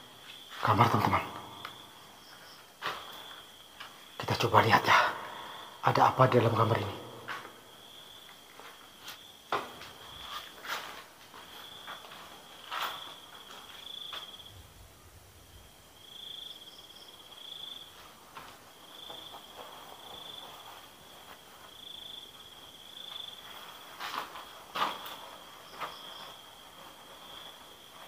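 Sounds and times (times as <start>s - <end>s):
cricket trilling: 0.0s - 28.0s
soft knocks and rustles: 8.3s - 14.4s.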